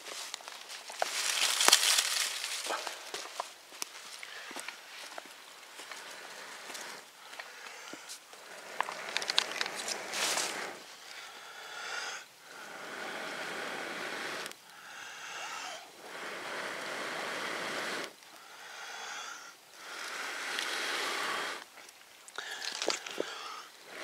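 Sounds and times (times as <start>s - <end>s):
person blowing on embers: 4.3s - 21.8s, 22.4s - 24.0s.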